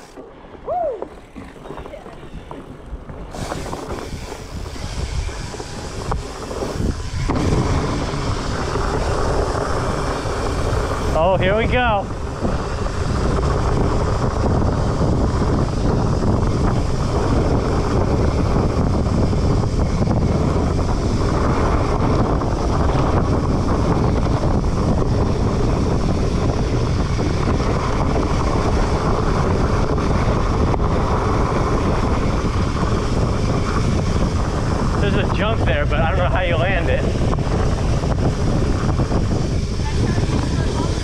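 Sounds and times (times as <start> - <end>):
bike tyres rolling on dirt: 0.0 - 41.0
wind rushing over microphone: 0.0 - 41.0.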